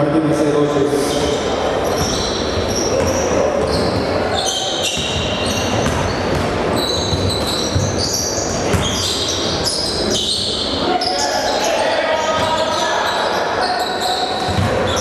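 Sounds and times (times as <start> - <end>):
sneakers squeaking on hardwood: 1.0 - 15.0
basketball bouncing: 1.1 - 4.2, 4.8 - 9.6, 14.4 - 15.0.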